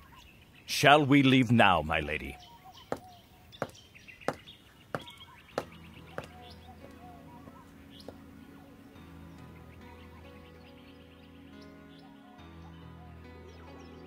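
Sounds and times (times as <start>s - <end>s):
birds chirping: 0.0s - 14.0s
footsteps: 5.0s - 8.3s.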